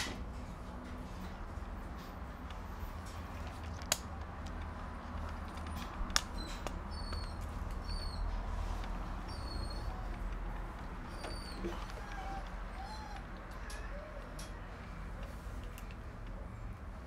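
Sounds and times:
sharp clicks: 3.4s - 7.5s
puppies squeaking: 5.3s - 15.0s.

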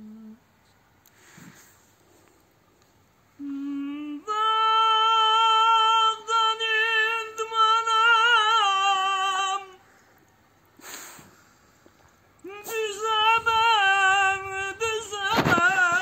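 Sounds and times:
man singing unaccompanied: 3.4s - 9.9s, 12.4s - 16.0s.

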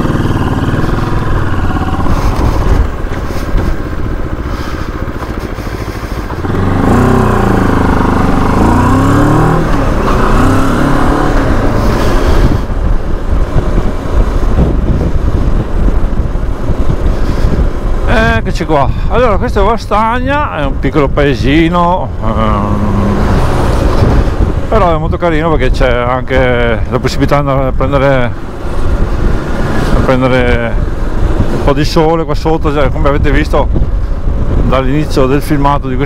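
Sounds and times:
motorcycle engine running: 0.0s - 18.5s
wind rumble: 0.0s - 36.0s.

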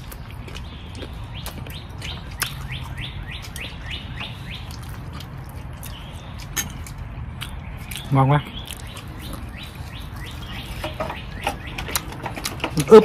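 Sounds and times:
songbird singing: 0.0s - 13.0s.

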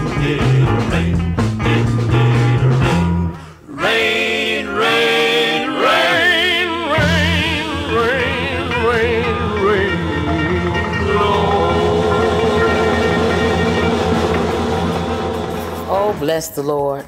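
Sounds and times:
bass-driven beat: 0.0s - 3.4s
gospel song with band: 0.0s - 16.5s
voices holding long notes: 3.7s - 17.0s.

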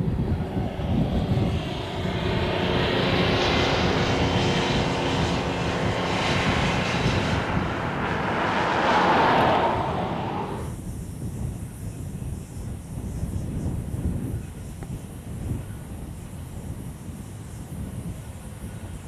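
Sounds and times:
engine drone: 0.0s - 10.8s.

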